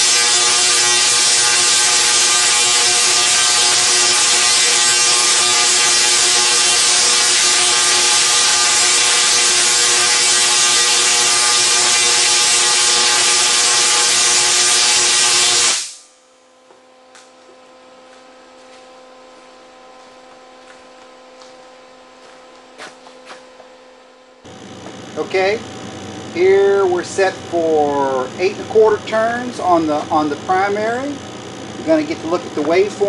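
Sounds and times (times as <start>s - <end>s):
tesla coil buzzing hiss: 0.0s - 16.2s, 24.5s - 33.0s
faint hum: 16.0s - 33.0s.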